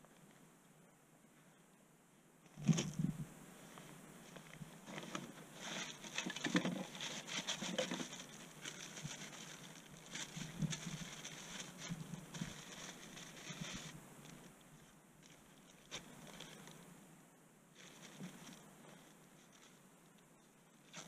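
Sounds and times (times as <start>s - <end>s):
rustling with clicks and taps: 3.8s - 16.8s, 17.8s - 21.0s.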